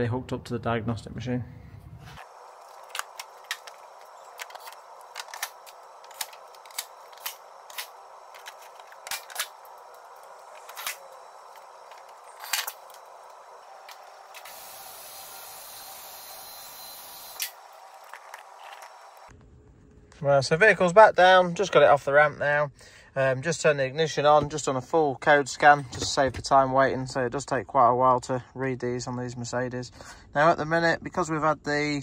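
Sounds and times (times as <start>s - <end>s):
steady hum: 1.2s - 20.0s
steady hiss: 2.2s - 19.3s.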